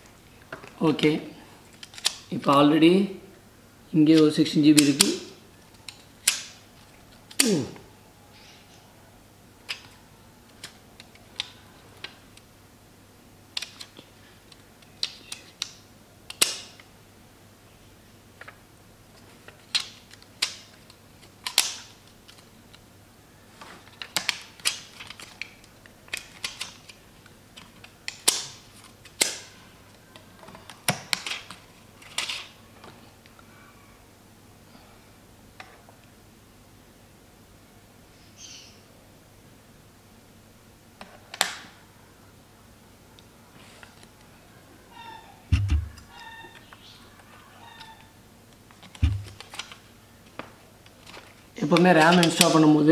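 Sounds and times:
small parts clicking and tapping: 0:01.7 - 0:02.3, 0:19.4 - 0:22.8, 0:23.9 - 0:32.5.

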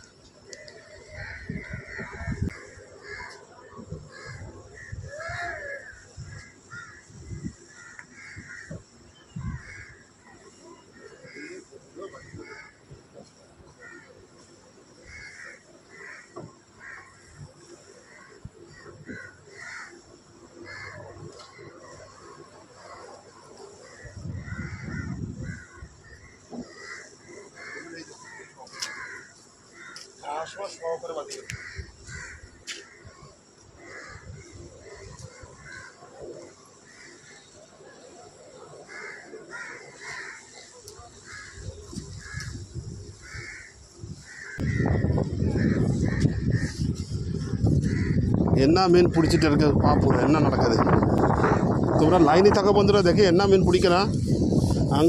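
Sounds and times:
crows cawing: 0:00.5 - 0:10.2, 0:11.0 - 0:37.6, 0:38.4 - 0:52.4.

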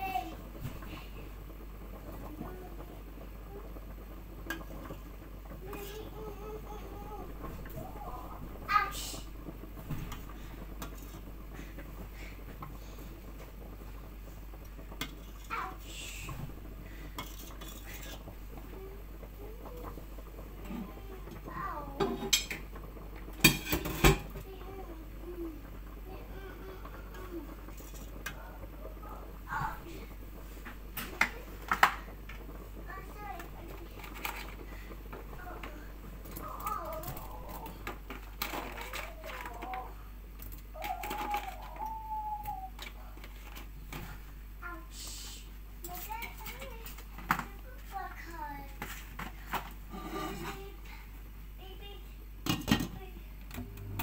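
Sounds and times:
steady low hum: 0:00.0 - 0:40.8, 0:41.9 - 0:54.0
ladle scraping pot: 0:10.1 - 0:11.3, 0:14.9 - 0:15.5, 0:17.0 - 0:18.4, 0:27.6 - 0:28.4, 0:49.5 - 0:50.6.

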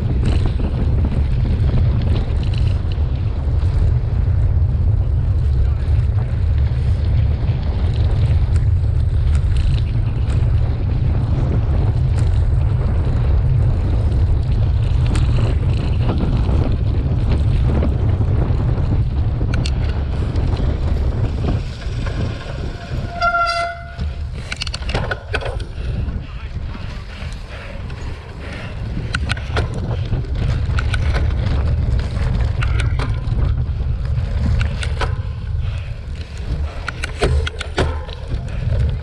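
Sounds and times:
tyres on rough dirt: 0:00.0 - 0:39.0
wind on microphone: 0:00.0 - 0:39.0
sharp clicks: 0:36.4 - 0:38.3.

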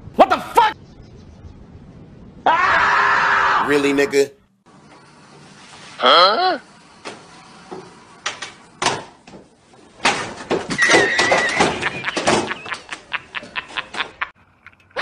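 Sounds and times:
high squeak: 0:10.7 - 0:11.9.

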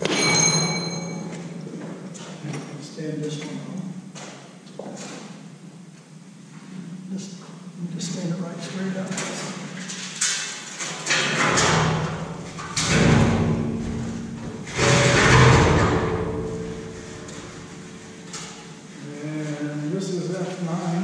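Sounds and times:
steel sheet flexing and wobbling: 0:11.0 - 0:18.7.

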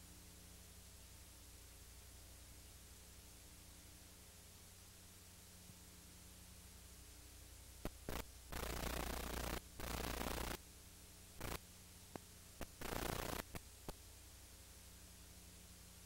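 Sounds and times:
steady low hum: 0:00.0 - 0:16.0
static hiss bursts: 0:07.7 - 0:10.7, 0:11.3 - 0:15.4
sharp clicks: 0:07.8 - 0:10.6, 0:11.4 - 0:14.0.

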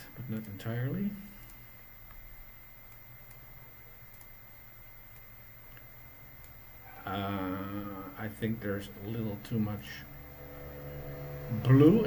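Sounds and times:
low room hum: 0:00.0 - 0:12.0
computer mouse clicks: 0:04.1 - 0:04.4, 0:05.1 - 0:06.6.

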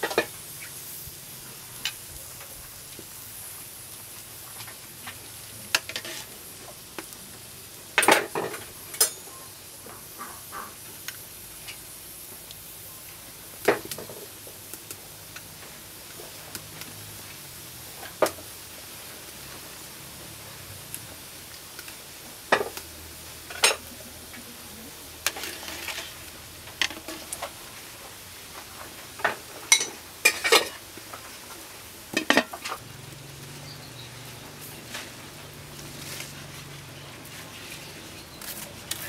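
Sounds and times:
simmering pot and fire hiss: 0:00.0 - 0:39.0
utensils clinking against metal pot: 0:08.0 - 0:09.4, 0:29.2 - 0:30.8, 0:32.1 - 0:32.8.

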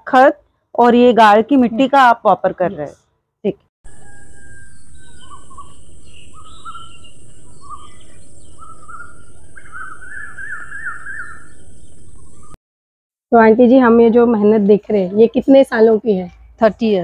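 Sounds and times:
songbirds chirping: 0:03.9 - 0:12.6.

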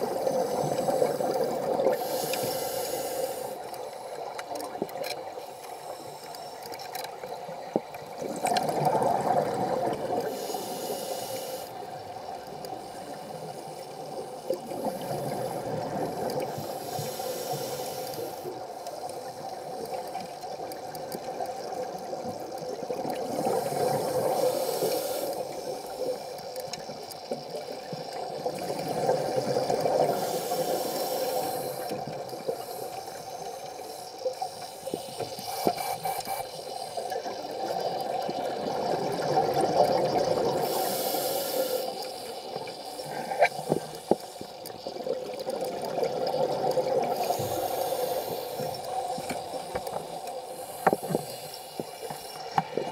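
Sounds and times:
diver breathing through regulator: 0:00.2 - 0:03.6, 0:10.2 - 0:11.8, 0:14.3 - 0:18.6, 0:23.3 - 0:25.9, 0:30.0 - 0:37.0, 0:40.6 - 0:44.6, 0:47.1 - 0:52.9.

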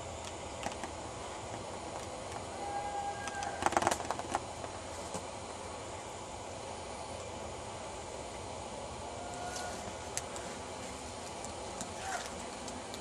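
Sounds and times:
leaves rustling against camera: 0:09.2 - 0:13.0.

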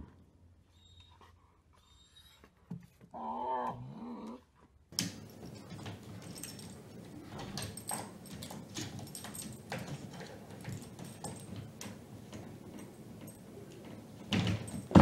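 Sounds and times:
rustling with clicks and knocks: 0:04.5 - 0:15.0.

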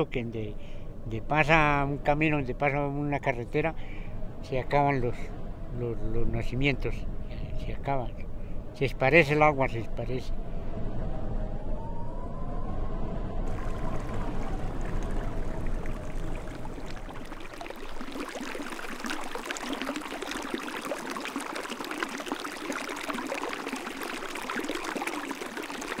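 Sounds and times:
low rumble: 0:10.3 - 0:17.7
stream water babbling: 0:13.5 - 0:26.0.

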